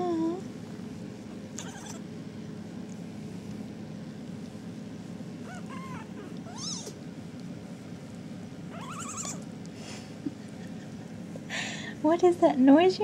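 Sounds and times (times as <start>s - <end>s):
kittens mewing: 1.6s - 2.0s, 5.4s - 7.0s, 8.7s - 9.6s.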